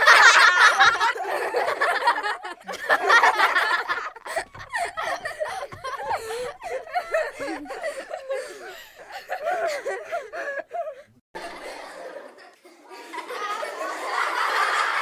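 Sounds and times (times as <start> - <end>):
person laughing: 0.0 - 11.1.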